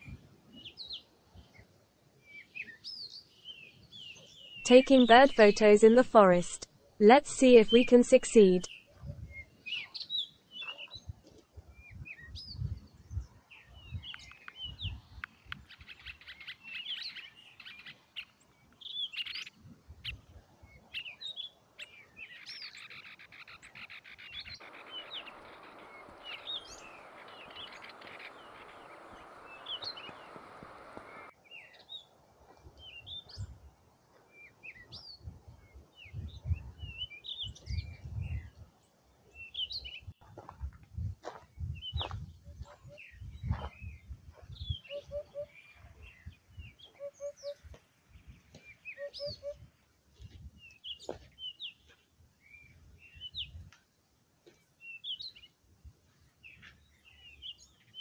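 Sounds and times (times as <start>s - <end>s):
small birds chirping: 7.5s - 32.1s, 39.2s - 40.2s, 41.2s - 49.6s
wind buffeting microphone: 8.9s - 9.5s, 11.1s - 15.8s, 35.0s - 38.7s, 40.1s - 45.2s, 45.9s - 46.9s
steady rushing hiss: 24.6s - 31.3s.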